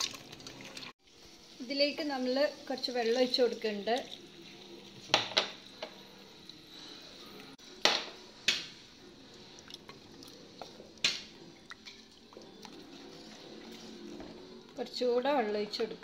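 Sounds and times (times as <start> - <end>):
soft stirring of broth: 8.2 - 14.8.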